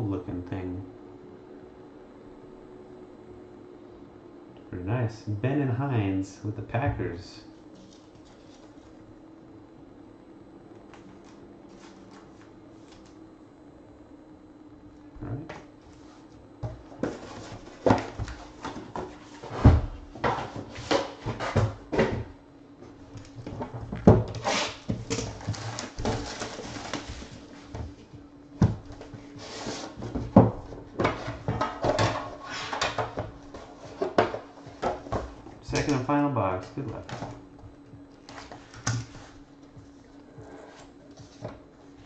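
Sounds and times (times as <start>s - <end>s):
cards sliding and rustling: 11.1s - 13.2s.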